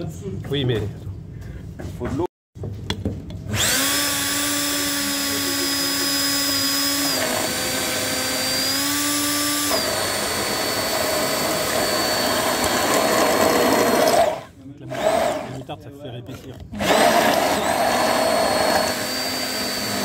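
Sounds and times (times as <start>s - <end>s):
immersion blender whining: 3.5s - 15.7s, 16.8s - 20.0s.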